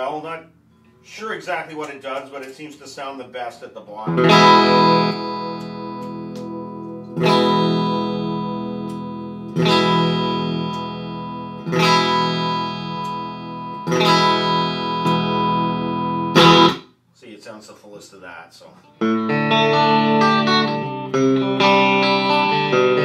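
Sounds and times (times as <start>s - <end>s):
clean electric guitar chords strummed: 4.1s - 16.8s, 18.9s - 23.0s.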